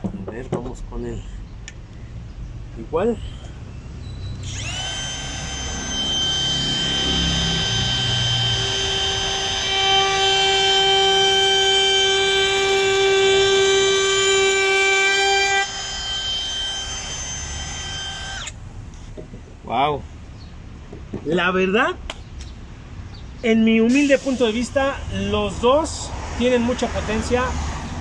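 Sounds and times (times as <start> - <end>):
router bit cutting wood: 4.4 - 18.6
router motor whining: 4.4 - 18.6.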